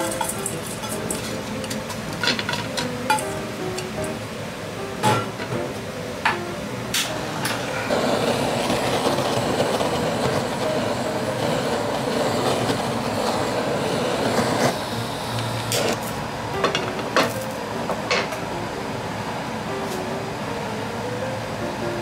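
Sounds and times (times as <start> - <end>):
blowtorch flame hissing: 6.8 - 17.6.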